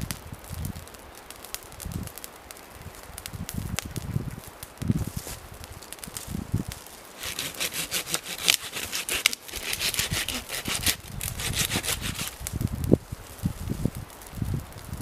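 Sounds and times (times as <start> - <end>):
hand saw cutting wood: 7.2 - 12.4.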